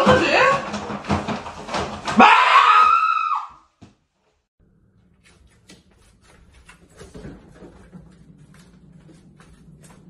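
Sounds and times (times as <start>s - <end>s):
man screaming in fright: 2.2s - 3.6s.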